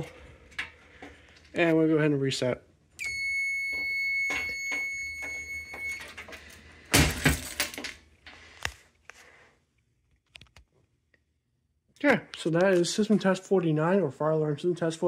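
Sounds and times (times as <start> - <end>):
alarm panel buzzer beep: 3.0 - 6.1.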